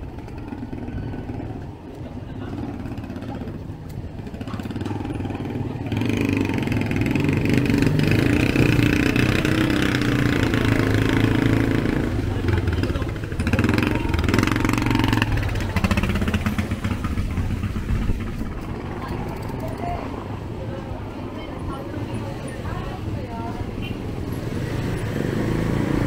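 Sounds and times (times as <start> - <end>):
motorcycle engine running: 0.0 - 19.6
street traffic: 0.0 - 26.0.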